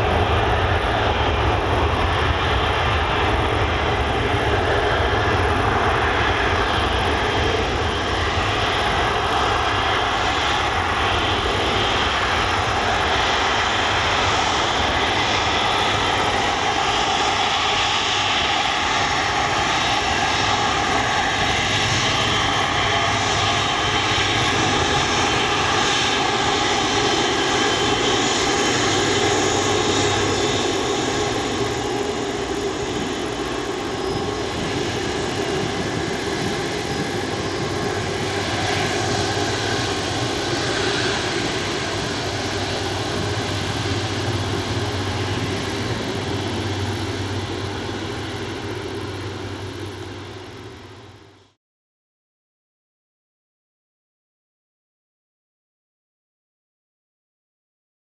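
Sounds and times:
jet engines roaring: 0.0 - 51.6.

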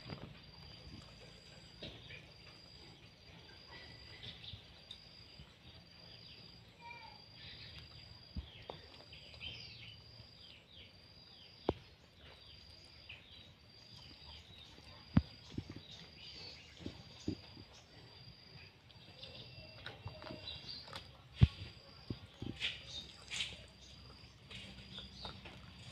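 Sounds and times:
birds chirping: 0.0 - 25.9
insects chirping: 0.0 - 25.9
dog eating off plastic plate: 24.4 - 25.9.

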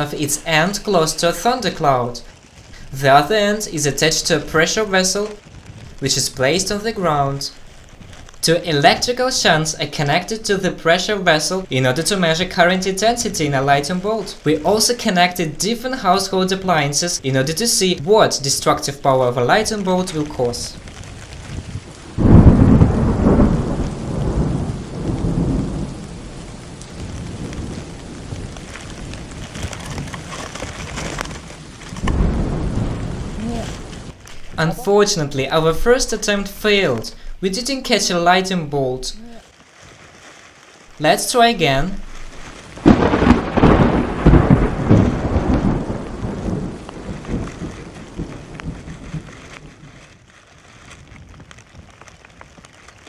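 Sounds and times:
light rain patter: 0.0 - 53.0
rolling thunder: 19.5 - 37.4, 41.8 - 50.0.

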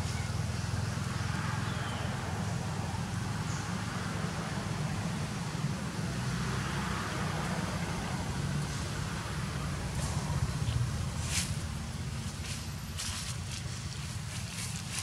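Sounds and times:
low outdoor rumble: 7.4 - 15.0.

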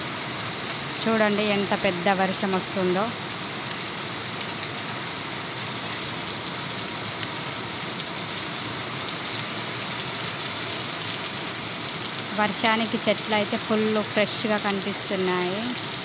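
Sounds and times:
heavy rain on plants: 0.0 - 16.0.

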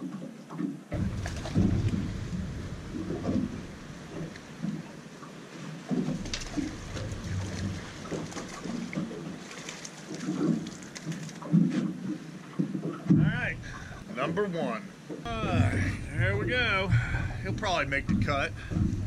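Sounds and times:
knocks on a boat: 0.9 - 4.8, 12.6 - 13.7, 17.5 - 19.0
wind rumbling on microphone: 0.9 - 5.0, 5.9 - 9.5, 15.3 - 19.0.

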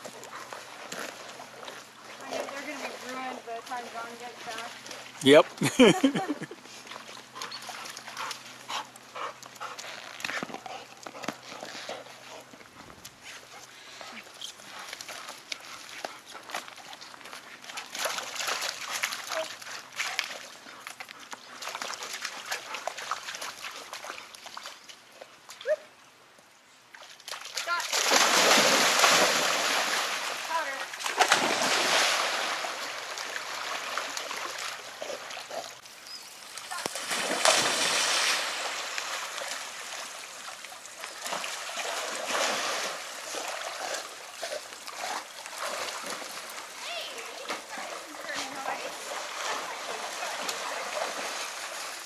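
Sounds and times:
dogs splashing at water's edge: 0.0 - 25.8, 26.9 - 52.0
dog splashing into pond: 26.9 - 52.0.

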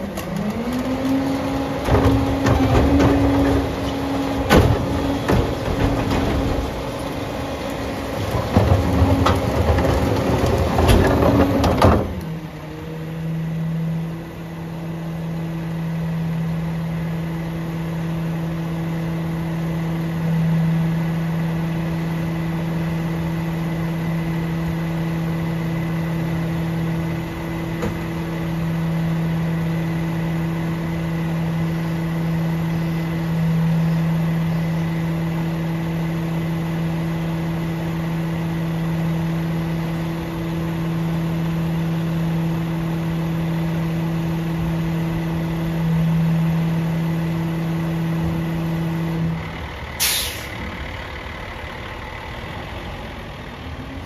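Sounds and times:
garbage truck humming: 0.0 - 54.0
air brake hiss: 50.0 - 50.7.

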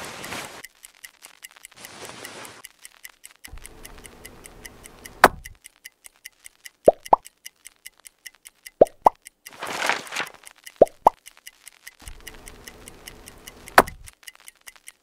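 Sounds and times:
rustling handling noise: 0.0 - 0.7, 1.8 - 2.7, 9.5 - 10.6
mechanical alarm clock ticking: 0.1 - 15.0
short pops rising in pitch: 5.1 - 5.6, 6.9 - 7.3, 8.7 - 9.3, 10.7 - 11.2, 13.7 - 14.1
sharp knock: 13.8 - 14.0.

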